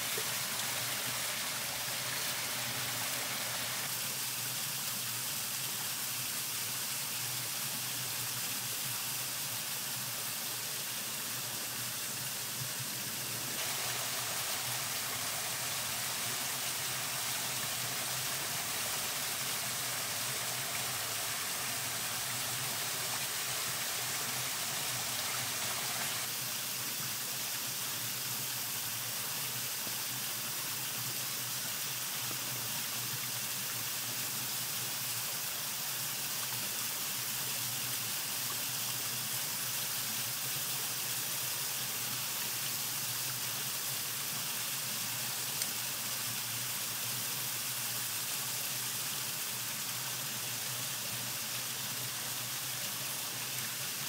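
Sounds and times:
waterfall rushing: 0.0 - 3.9, 13.1 - 26.3.

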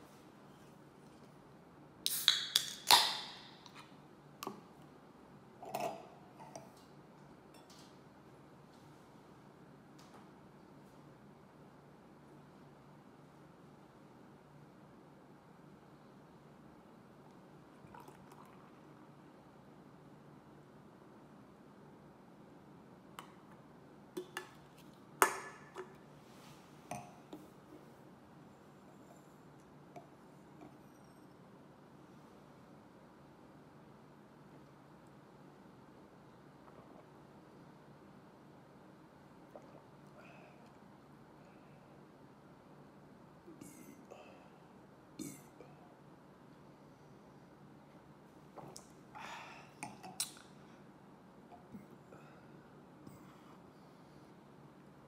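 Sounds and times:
can cracking open with hiss: 2.0 - 3.8.

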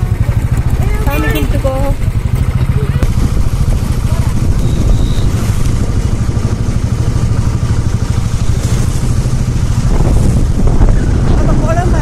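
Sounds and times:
motorcycle engine running: 0.0 - 12.0
wind and road noise: 0.0 - 12.0.

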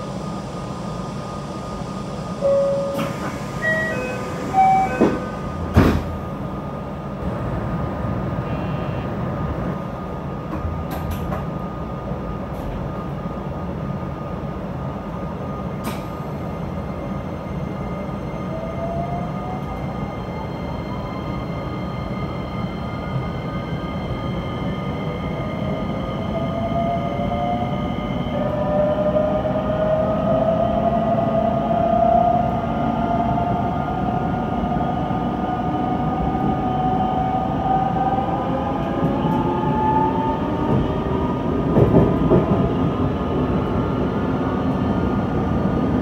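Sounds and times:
electric train inverter whine: 0.0 - 46.0.

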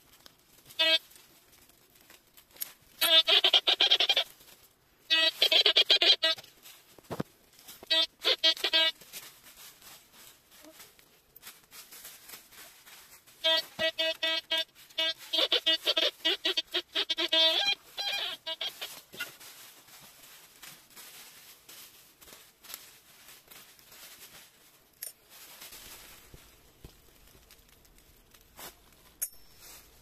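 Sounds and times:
rustling of dry leaves and soil: 0.0 - 30.0
metal detector beeping: 29.2 - 30.0.

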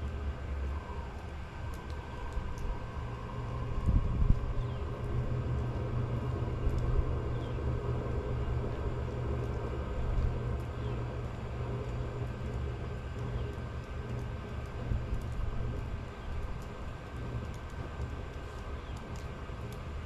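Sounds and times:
heater exhaust rumble: 0.0 - 20.0.

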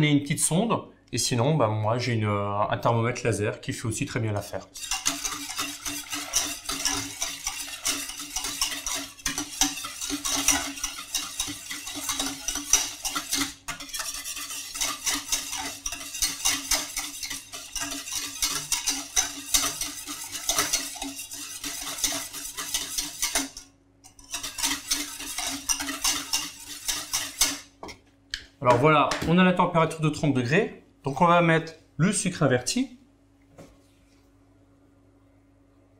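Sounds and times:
whisk scraping and clinking in a pan: 4.4 - 27.9.

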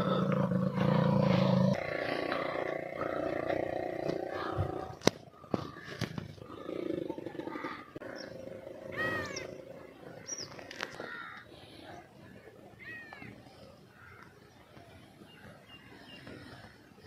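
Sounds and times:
low drawn-out animal call: 0.0 - 11.5
crows cawing: 5.3 - 6.4, 10.6 - 11.6.

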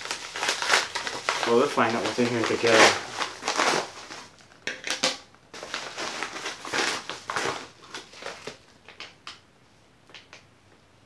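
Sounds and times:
paper mailer crinkling: 0.0 - 4.5, 5.6 - 8.6.

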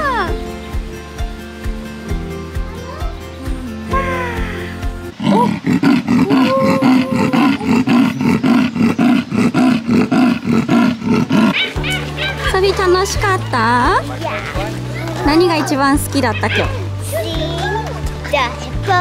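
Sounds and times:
background music: 0.0 - 19.0
leopard roaring: 5.1 - 12.5.

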